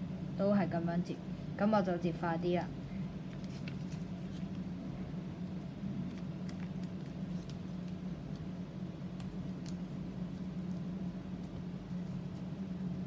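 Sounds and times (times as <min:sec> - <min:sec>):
steady low hum: 0:00.0 - 0:13.0
paper folding and creasing: 0:03.3 - 0:04.6, 0:06.0 - 0:10.8.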